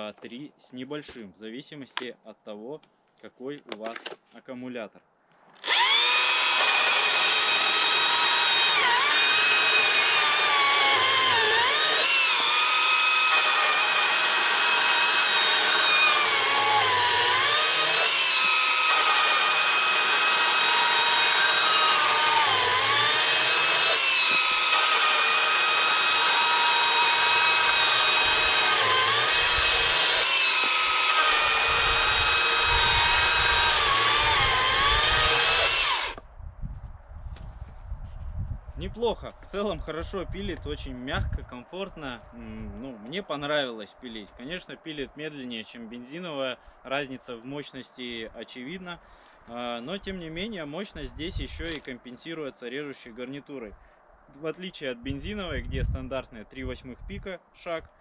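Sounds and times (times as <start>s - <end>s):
battery chainsaw sawing wood: 5.6s - 36.2s.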